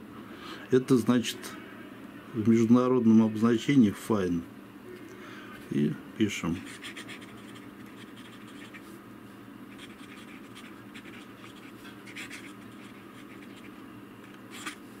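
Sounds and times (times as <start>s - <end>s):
pen nib scratching on paper: 6.5s - 8.9s, 9.7s - 14.8s.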